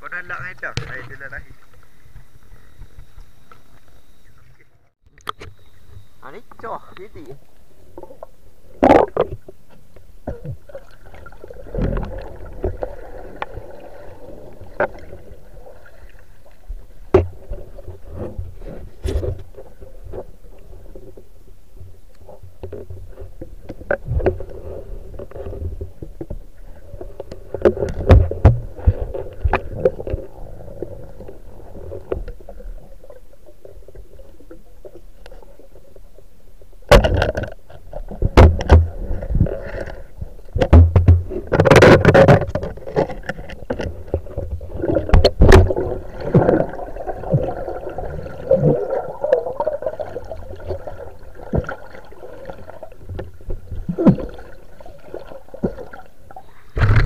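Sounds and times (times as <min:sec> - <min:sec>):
muffled underwater water rush: 0:00.0 - 0:57.0
underwater clicks and knocks: 0:00.3 - 0:13.8, 0:14.6 - 0:15.3, 0:17.0 - 0:20.3, 0:21.0 - 0:32.8, 0:36.9 - 0:54.5, 0:56.8 - 0:57.0
underwater thumps: 0:08.8 - 0:15.5, 0:16.7 - 0:20.4, 0:21.8 - 0:32.8, 0:36.8 - 0:56.0, 0:56.8 - 0:57.0.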